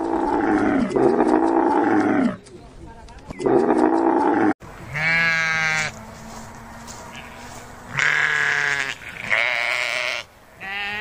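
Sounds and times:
sheep bleating: 0:00.0 - 0:02.4, 0:03.5 - 0:06.0, 0:07.1 - 0:11.0.

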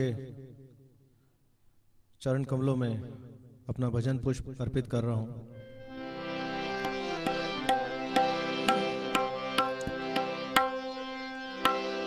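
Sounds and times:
harmonium chord: 0:05.6 - 0:12.0
tabla strikes: 0:06.8 - 0:12.0.

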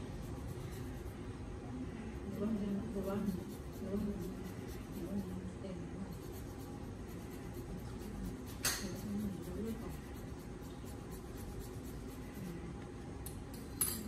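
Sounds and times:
nail tool scratching toenail: 0:02.4 - 0:12.6.

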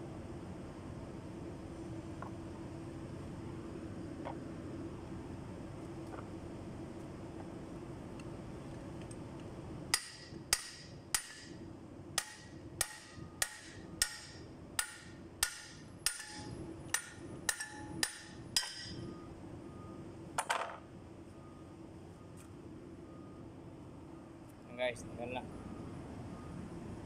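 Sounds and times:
hammer striking metal pulley: 0:09.9 - 0:11.6, 0:12.2 - 0:19.0.

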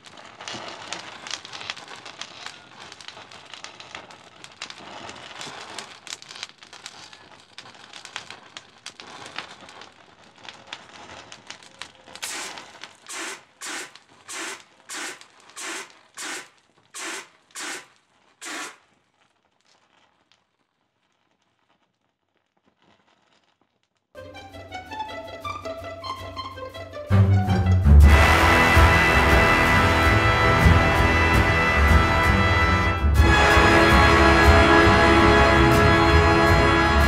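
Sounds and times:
burning matches crackling and popping: 0:00.0 - 0:24.2, 0:27.6 - 0:37.0
fire extinguisher hissing bursts: 0:12.2 - 0:18.8.

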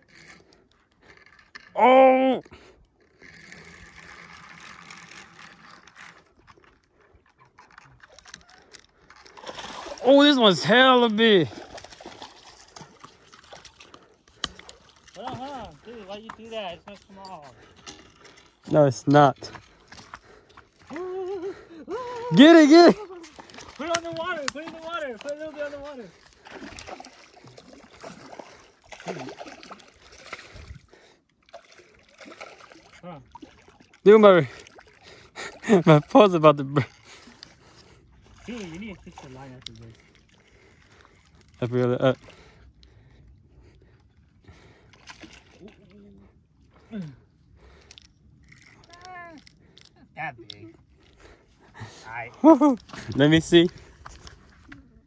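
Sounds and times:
fishing reel whirring: 0:00.0 - 0:01.6, 0:03.0 - 0:07.0
reel clicks: 0:00.0 - 0:01.8, 0:02.7 - 0:09.5, 0:47.8 - 0:50.6
fish splashing in water: 0:09.3 - 0:10.2, 0:11.5 - 0:15.4, 0:26.2 - 0:30.7, 0:31.5 - 0:35.0.

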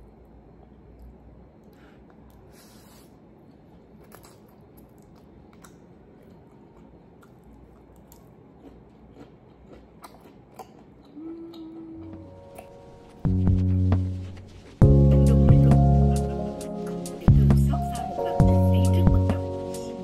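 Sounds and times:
close-up chewing: 0:03.4 - 0:12.8.

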